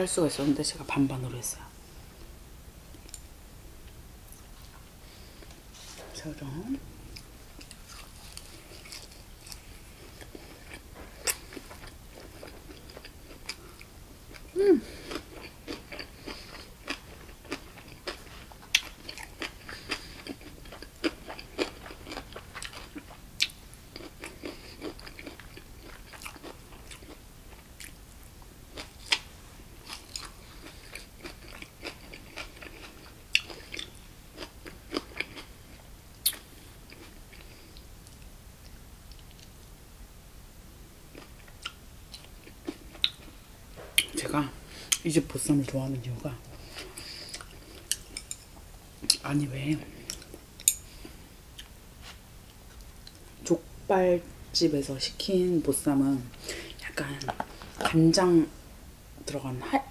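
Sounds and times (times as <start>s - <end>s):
wet chewing with crunches: 7.1s - 28.0s, 28.7s - 35.5s, 46.6s - 49.2s
person humming: 14.5s - 15.0s.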